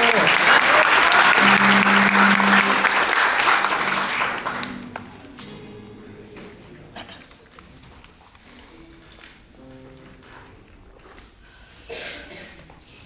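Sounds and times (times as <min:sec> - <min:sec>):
audience applause: 0:00.0 - 0:05.4
held low instrument note: 0:01.3 - 0:06.9
soft instrument notes: 0:01.3 - 0:11.0.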